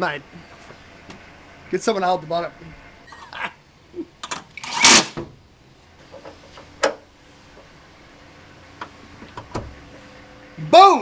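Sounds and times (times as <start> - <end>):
cordless drill driving a bolt: 4.6 - 5.2.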